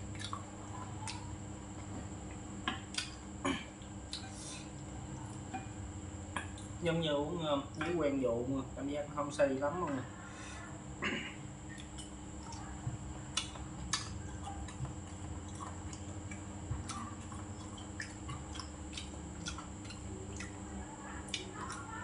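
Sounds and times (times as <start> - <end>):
man chewing food: 0.0 - 6.8, 11.6 - 22.0
faint background hum: 0.0 - 22.0
wet mouth clicks and smacks: 0.2 - 0.4, 2.6 - 3.2, 13.4 - 14.8, 15.5 - 20.6.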